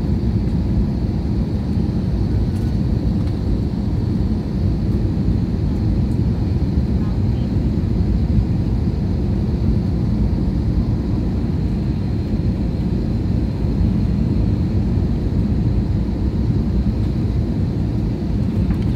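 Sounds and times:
airplane cabin rumble: 0:00.0 - 0:18.9.

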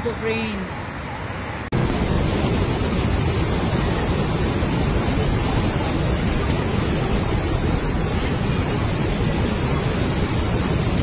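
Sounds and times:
water rushing through weir: 0:00.0 - 0:11.0.

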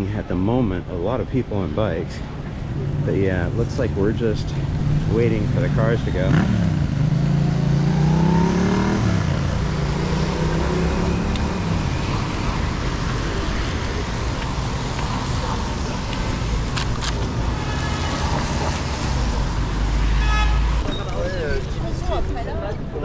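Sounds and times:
traffic rumble: 0:00.0 - 0:23.0
vehicle engine pulling away: 0:03.0 - 0:17.4.

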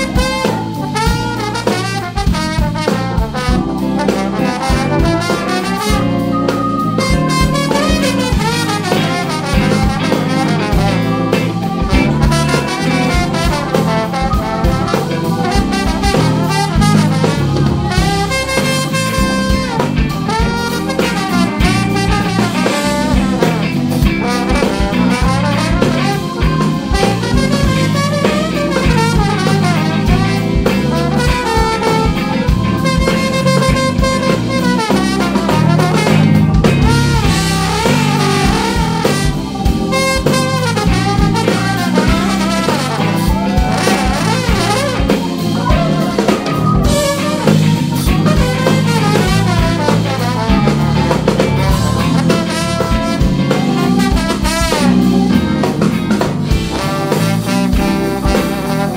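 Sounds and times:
jazz band playing: 0:00.0 - 0:58.9
trombone solo: 0:00.0 - 0:58.9.

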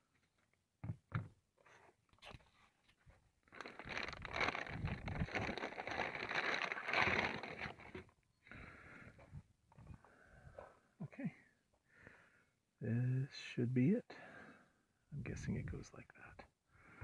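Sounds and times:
plastic bags crinkling: 0:03.5 - 0:08.1.

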